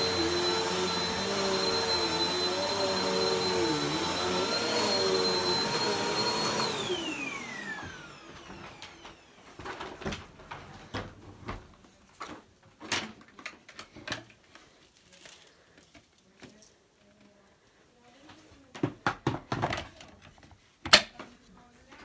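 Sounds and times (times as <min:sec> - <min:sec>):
vacuum cleaner motor whine: 0:00.0 - 0:09.8.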